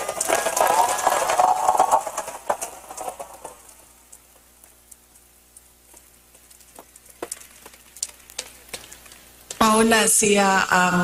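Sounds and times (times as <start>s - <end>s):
crowd applause: 0.0s - 3.7s.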